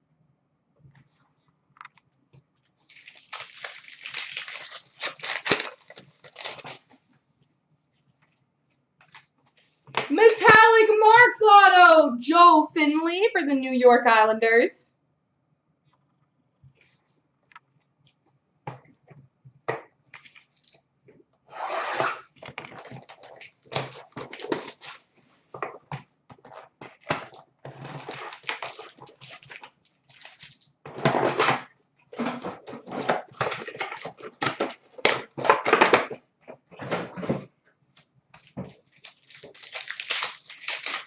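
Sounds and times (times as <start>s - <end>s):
wrapper crinkling and tearing: 2.8s - 6.9s, 20.2s - 20.8s, 22.4s - 25.1s, 26.5s - 31.6s, 38.4s - 41.0s.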